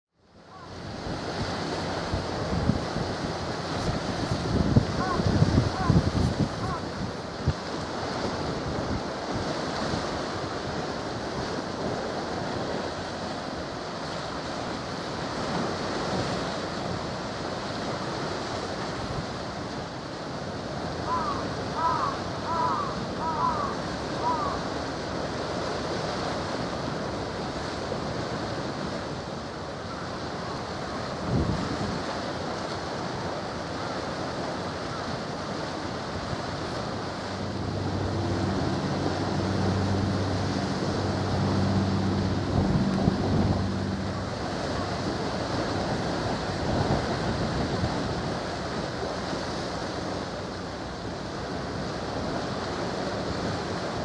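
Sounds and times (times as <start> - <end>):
boat engine hum: 0.2 - 54.0
waves lapping shore: 0.2 - 54.0
wind buffeting microphone: 0.5 - 19.5, 30.4 - 33.4, 34.0 - 54.0.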